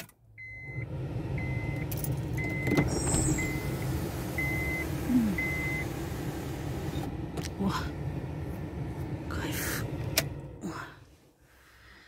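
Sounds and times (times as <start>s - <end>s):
dashboard warning chime beeping: 0.4s - 6.2s
car engine idling: 0.6s - 10.8s.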